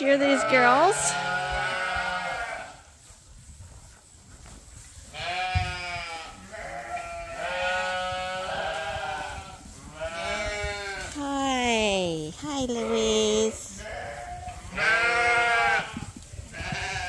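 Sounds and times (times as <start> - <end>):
sheep bleating: 0.2 - 2.8, 5.2 - 11.1, 12.6 - 16.0.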